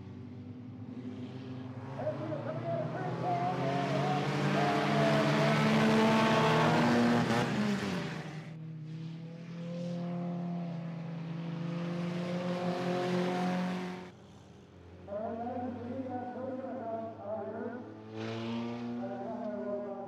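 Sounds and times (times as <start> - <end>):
stock car engines racing: 0.0 - 20.0.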